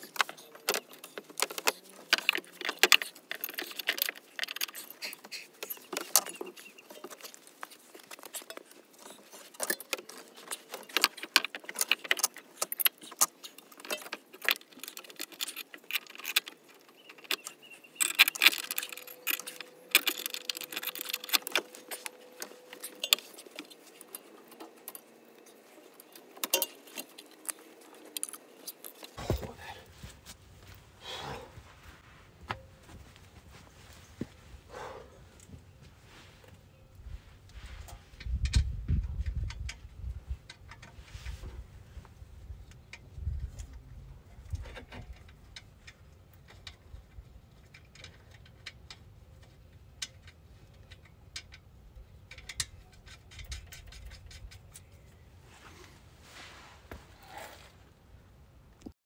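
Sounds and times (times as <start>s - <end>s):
metallic clinking of brake parts: 2.2s - 29.7s.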